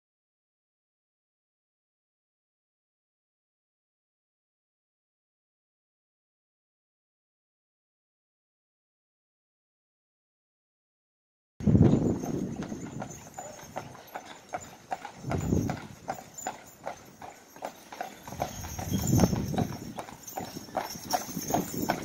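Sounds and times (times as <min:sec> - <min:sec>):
hooves clip-clopping on asphalt: 0:11.6 - 0:22.0.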